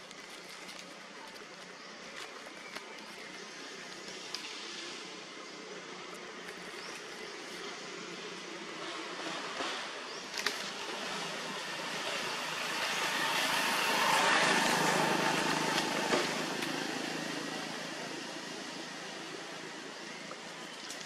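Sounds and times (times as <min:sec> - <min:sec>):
motor vehicle passing by: 0:08.2 - 0:20.3.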